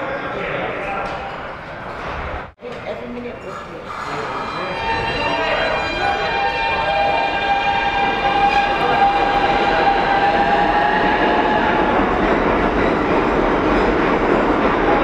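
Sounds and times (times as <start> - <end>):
train rumble and rail noise: 0.9 - 15.0
subway train whine: 3.7 - 15.0.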